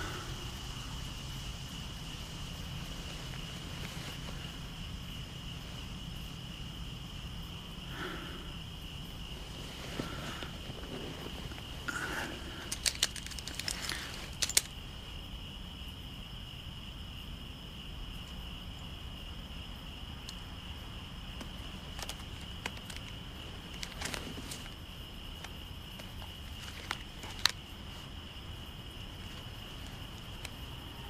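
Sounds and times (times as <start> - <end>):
crickets chirring: 0.0 - 31.0
rustling: 1.0 - 15.2, 21.1 - 31.0
sharp metallic clicks: 12.6 - 14.8.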